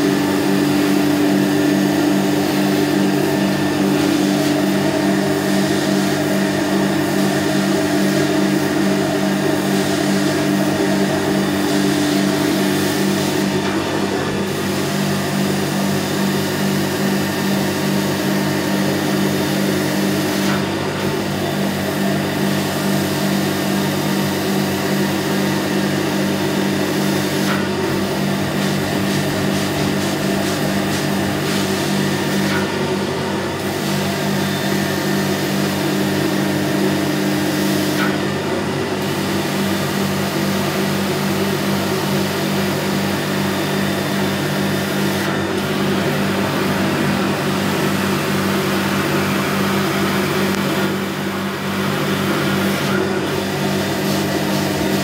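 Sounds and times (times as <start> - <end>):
vacuum motor running: 0.0 - 55.0
suction hiss on a rug: 21.3 - 32.8.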